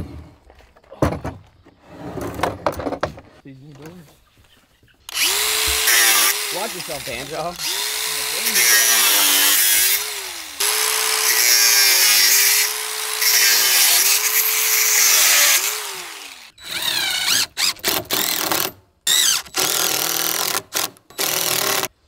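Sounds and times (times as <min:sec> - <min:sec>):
angle grinder cutting metal wire: 0:05.1 - 0:21.9
impact driver bursts: 0:05.1 - 0:21.9.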